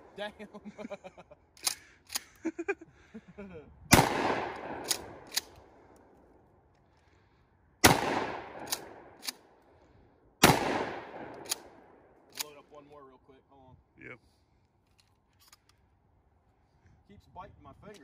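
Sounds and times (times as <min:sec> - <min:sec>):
shotgun shots: 0:03.9 - 0:05.5, 0:07.8 - 0:09.4, 0:10.4 - 0:11.9.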